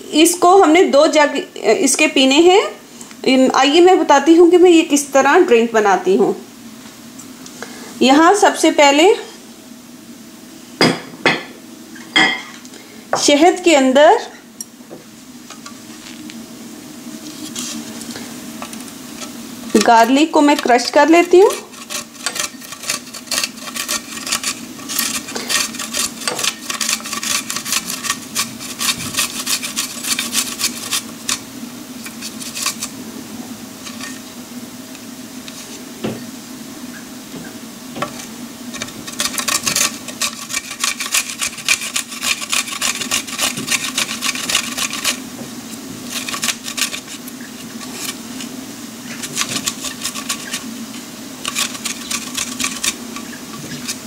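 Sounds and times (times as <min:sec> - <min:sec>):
steady low hum: 0:00.0 - 0:54.0
garlic scraping on metal grater: 0:18.6 - 0:33.0, 0:38.1 - 0:45.2, 0:46.0 - 0:50.8, 0:51.4 - 0:54.0.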